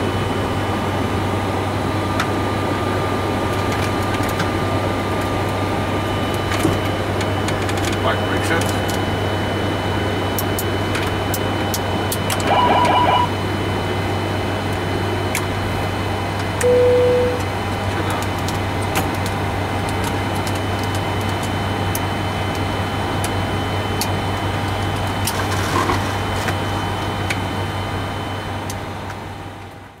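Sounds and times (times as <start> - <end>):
multi-tone beep: 12.4 - 13.3, 16.6 - 17.4
single-tone beep: 12.4 - 13.3, 16.6 - 17.4.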